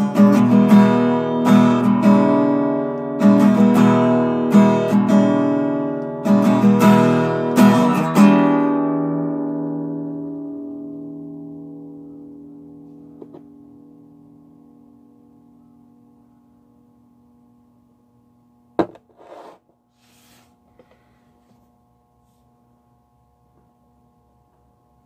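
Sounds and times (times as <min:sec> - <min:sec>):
guitar chord ringing out: 0:00.0 - 0:16.5.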